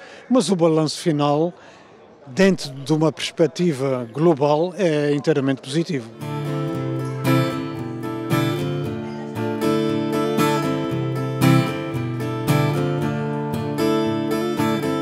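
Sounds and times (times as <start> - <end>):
acoustic guitar strumming chords: 6.1 - 15.0.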